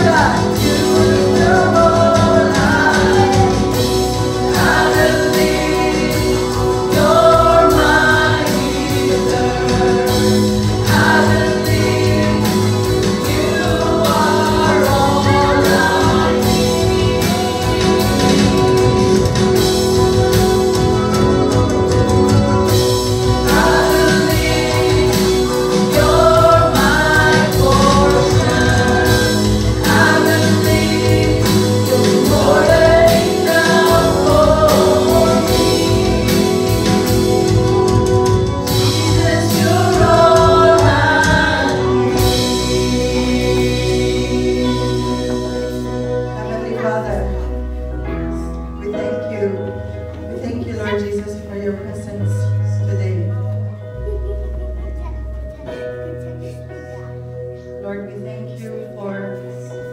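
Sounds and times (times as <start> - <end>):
lead singer and group singing: 0.0 - 47.6
band playing steady beat: 0.0 - 57.6.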